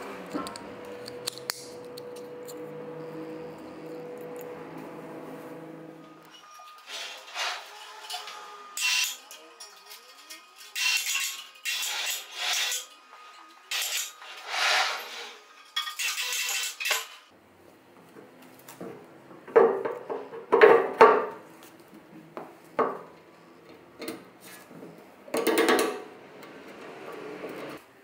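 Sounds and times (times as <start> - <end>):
metal parts clinking: 8.0 - 12.9, 13.7 - 17.2.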